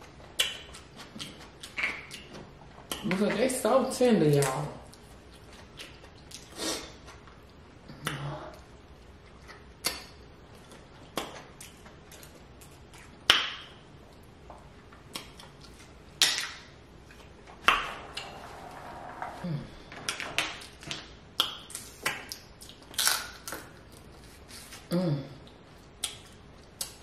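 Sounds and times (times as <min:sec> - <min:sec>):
crab shells cracking by hand: 0:20.1 - 0:23.7.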